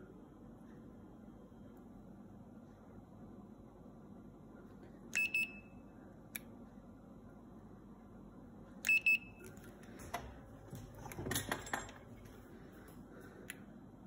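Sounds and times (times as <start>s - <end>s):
thermometer short high beeps: 5.2s - 5.8s, 8.9s - 9.4s
handling clicks and rustling: 9.5s - 12.3s.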